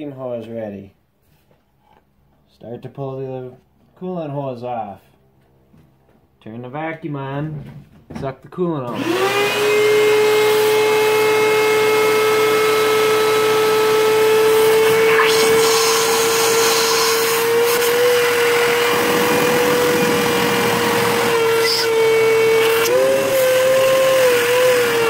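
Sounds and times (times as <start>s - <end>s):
shop vac whining: 8.8s - 25.0s
liquid rushing through hose: 14.6s - 23.5s.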